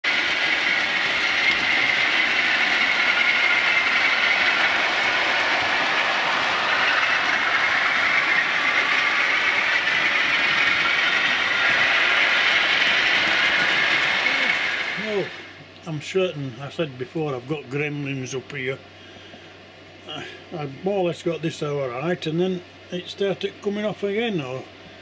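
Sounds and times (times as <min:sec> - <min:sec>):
model train wheels rolling on rail: 0:00.0 - 0:18.8.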